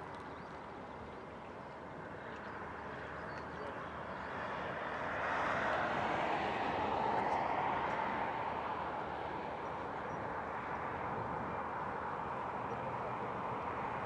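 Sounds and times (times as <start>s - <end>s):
jet engine roar at takeoff: 2.8s - 14.0s.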